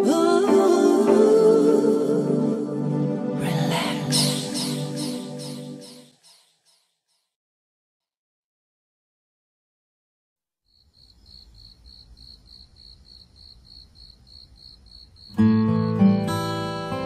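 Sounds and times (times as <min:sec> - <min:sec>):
music with guitar: 0:15.3 - 0:17.0.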